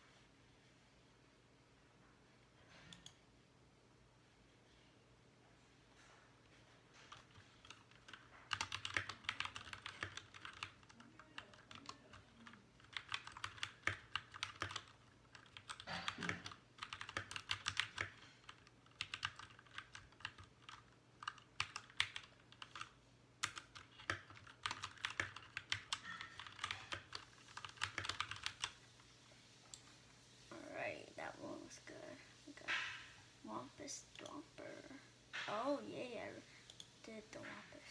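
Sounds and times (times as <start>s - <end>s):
fast typing on mechanical keyboard: 7.0s - 28.8s.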